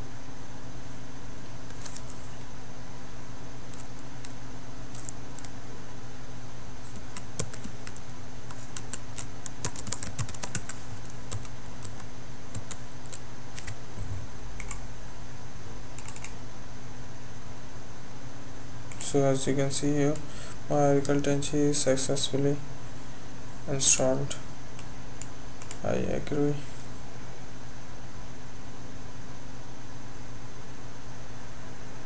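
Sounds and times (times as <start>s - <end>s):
steady low hum: 0.0s - 32.0s
computer keyboard typing: 3.7s - 5.5s, 6.9s - 14.8s, 16.0s - 16.4s, 24.8s - 25.8s.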